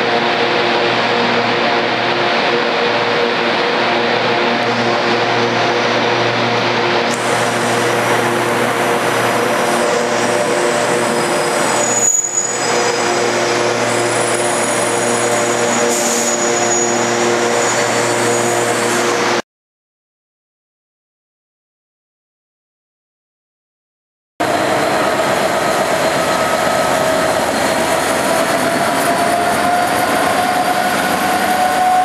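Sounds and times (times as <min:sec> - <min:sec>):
electric locomotive humming: 0:00.0 - 0:19.4, 0:24.4 - 0:32.0
high whine: 0:00.0 - 0:19.4.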